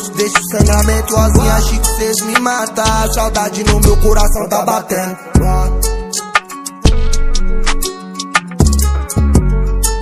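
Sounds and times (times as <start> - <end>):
instrumental beat music: 0.0 - 10.0
deep bass: 0.6 - 2.1, 2.9 - 4.4, 5.4 - 6.1, 6.9 - 7.9, 8.6 - 10.0.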